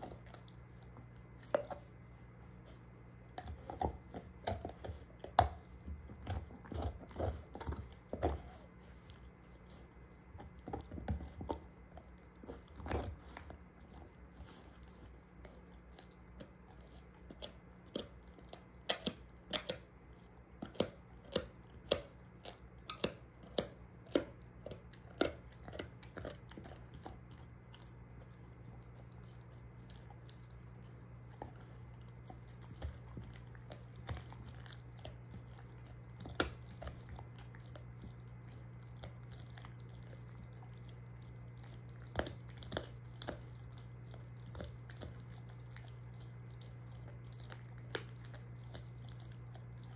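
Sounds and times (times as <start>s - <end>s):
dog gnawing a bone: 0.0s - 49.9s.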